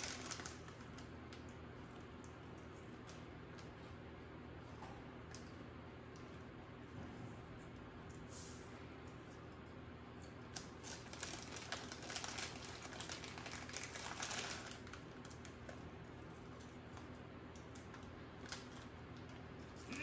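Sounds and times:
foil bag crinkling: 0:00.0 - 0:01.1, 0:10.5 - 0:17.1
chewing crunchy chips: 0:10.6 - 0:17.1.

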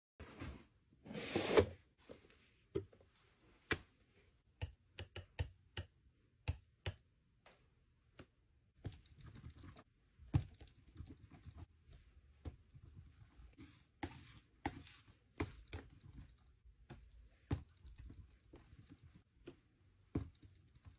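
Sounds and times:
palette knife scraping palette: 0:13.6 - 0:16.1.

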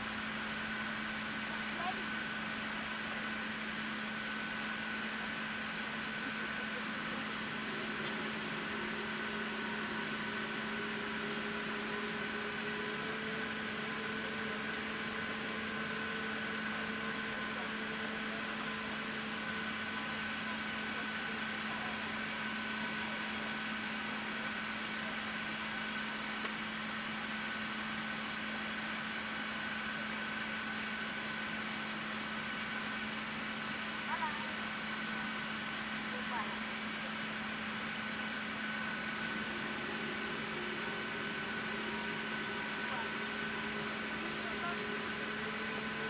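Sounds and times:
high-pitched whine: 0:00.0 - 0:25.2, 0:37.4 - 0:46.0.

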